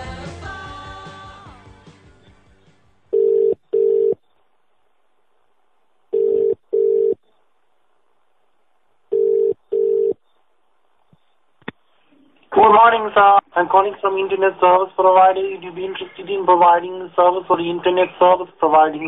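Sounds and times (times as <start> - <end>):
rock song: 0.0 - 3.0
telephone ringing tone: 3.1 - 4.2, 6.1 - 7.2, 9.1 - 10.2.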